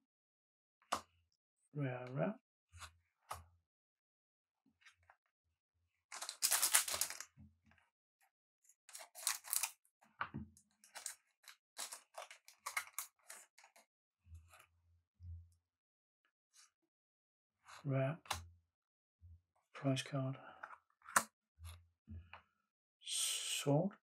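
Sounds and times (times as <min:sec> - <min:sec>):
cards rustling: 0:06.1 - 0:07.2, 0:08.9 - 0:09.7, 0:10.8 - 0:11.2, 0:11.8 - 0:13.7
foil wrapper crinkling: 0:06.2 - 0:07.2, 0:09.0 - 0:09.7.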